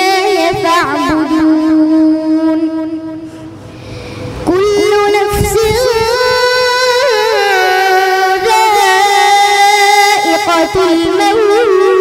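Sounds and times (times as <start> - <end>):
boy reciting in melodic chant: 0.0 - 3.6, 4.2 - 12.0.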